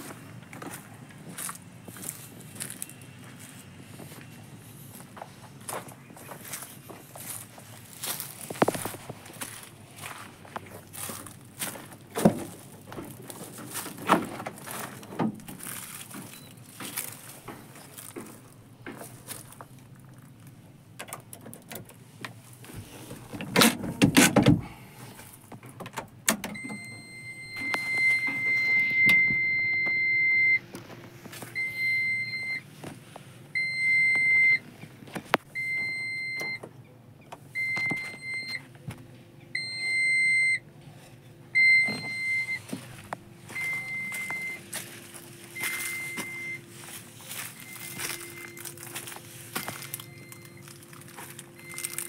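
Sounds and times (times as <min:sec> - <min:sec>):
rustling clatter: 0:05.7 - 0:20.6.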